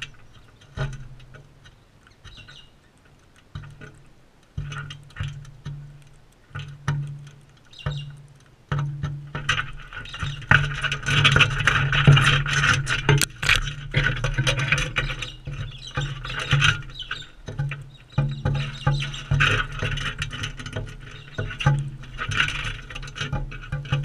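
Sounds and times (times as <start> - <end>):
beaks tapping on seed: 0.0 - 11.7, 13.1 - 24.0
birds squeaky chatter: 1.7 - 3.0, 7.6 - 8.2, 10.0 - 10.5, 14.9 - 19.4, 21.1 - 21.6.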